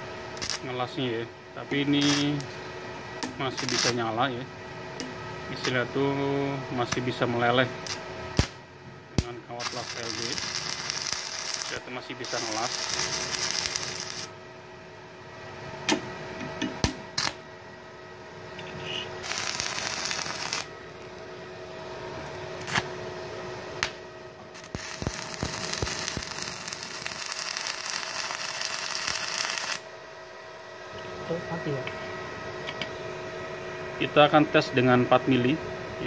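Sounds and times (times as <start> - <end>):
welding arc crackling and hissing: 0.0 - 1.0, 1.8 - 2.6, 3.2 - 4.2, 5.5 - 5.9, 7.7 - 8.6, 9.2 - 14.3, 17.2 - 17.4, 18.7 - 21.2, 22.6 - 22.9, 24.5 - 29.9.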